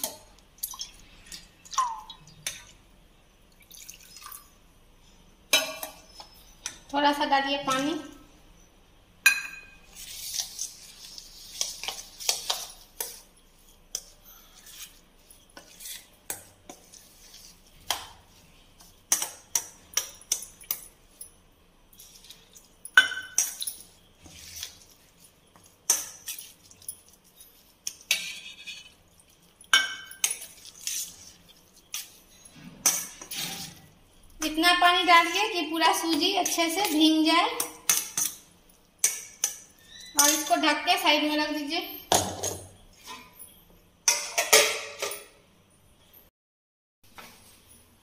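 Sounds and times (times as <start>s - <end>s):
spoon stirring thick batter: 9.6s - 21.3s, 21.9s - 41.2s
spoon scraping and clinking on metal: 22.0s - 25.0s, 25.9s - 33.9s, 37.6s - 40.6s.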